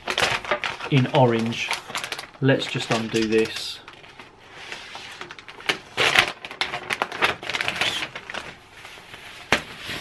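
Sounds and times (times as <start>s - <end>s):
sharp plastic crack: 0.0s - 4.4s, 5.1s - 8.6s
plastic bag crinkling: 0.0s - 10.0s.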